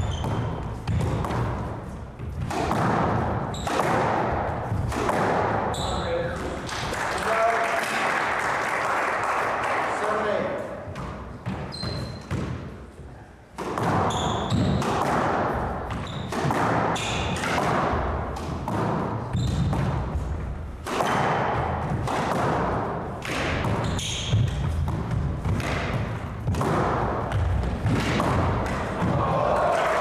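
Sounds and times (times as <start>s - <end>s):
shoes squeaking on hardwood floor: 0.0s - 2.4s, 3.4s - 3.8s, 5.7s - 6.4s, 11.4s - 12.4s, 14.0s - 14.8s, 15.9s - 16.4s, 19.3s - 19.8s, 23.7s - 24.9s
squash ball cracking off walls: 0.0s - 5.8s, 13.6s - 29.8s.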